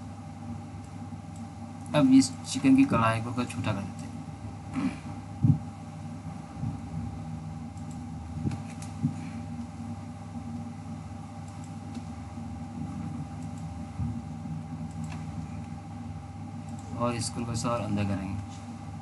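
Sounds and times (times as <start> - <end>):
low background hum: 0.0 - 19.0
computer mouse clicks: 7.7 - 9.1, 11.4 - 12.1, 13.0 - 13.7, 14.8 - 15.8, 16.6 - 16.9.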